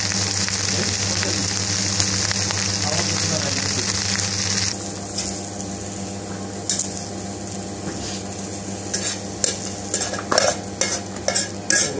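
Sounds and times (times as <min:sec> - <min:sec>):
kitchen equipment humming: 0:00.0 - 0:11.9
utensils scraping and clinking cookware: 0:08.9 - 0:11.9.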